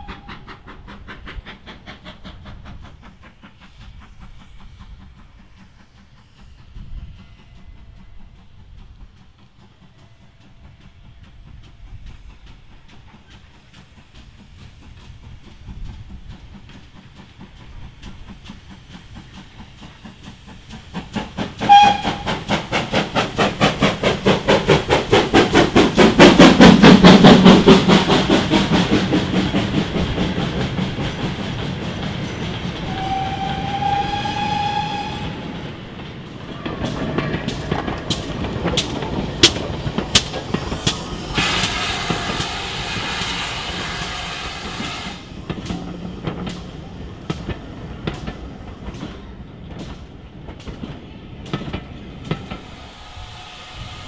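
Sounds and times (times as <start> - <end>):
steam locomotive whistle: 0.0 - 0.5, 21.5 - 22.7, 32.7 - 35.7, 41.3 - 45.3
steam locomotive exhaust beats: 0.0 - 54.0.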